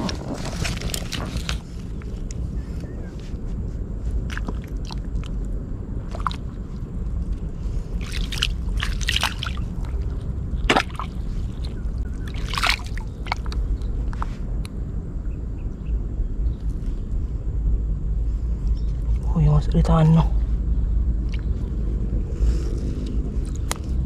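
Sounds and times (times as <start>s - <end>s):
steady low rumble: 0.0s - 24.0s
wet splashes: 6.0s - 6.6s, 7.9s - 13.6s
hand squelching in muddy water: 7.9s - 13.6s.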